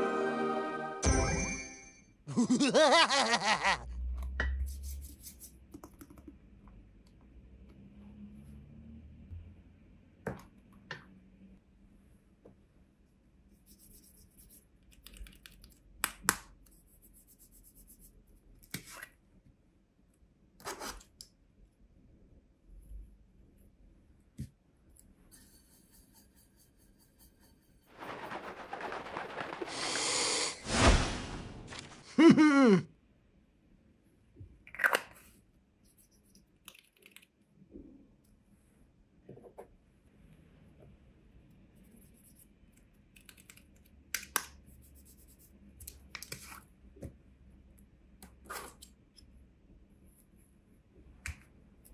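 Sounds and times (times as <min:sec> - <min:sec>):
plastic pot scraping: 0:27.9 - 0:30.8
rustling: 0:27.9 - 0:32.1.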